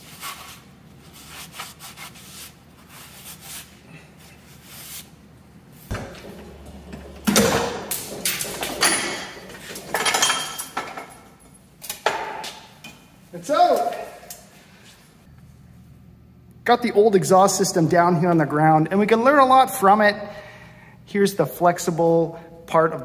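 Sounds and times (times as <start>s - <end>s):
paper towel wiping: 0.0s - 5.9s
metal pipes knocking and scraping: 5.9s - 11.3s.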